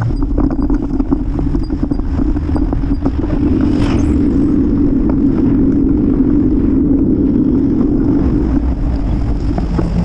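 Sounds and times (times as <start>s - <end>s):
bicycle rattles and knocks: 0.0s - 3.4s, 8.5s - 10.0s
wind and road rumble: 0.0s - 10.0s.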